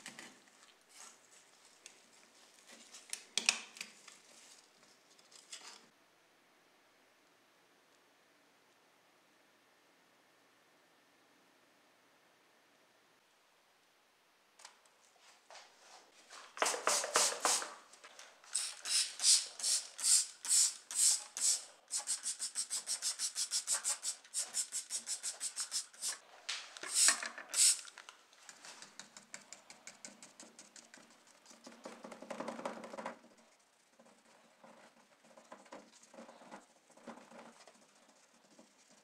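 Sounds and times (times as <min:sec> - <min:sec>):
spray hissing: 0:16.6 - 0:17.8, 0:18.5 - 0:26.2, 0:26.9 - 0:27.9
brush scrubbing: 0:18.6 - 0:26.3.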